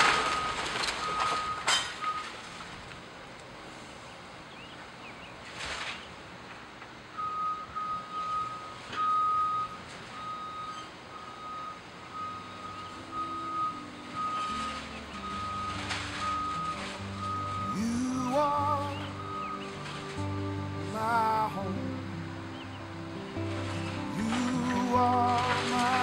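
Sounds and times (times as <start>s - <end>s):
reversing alarm beeping: 0.0s - 2.3s, 7.2s - 21.6s
music: 12.8s - 26.0s.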